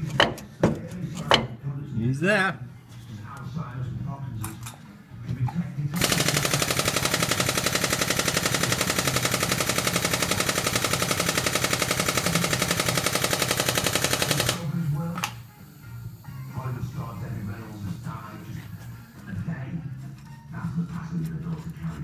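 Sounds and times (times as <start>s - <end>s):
hydraulic pump chattering: 6.0s - 14.6s.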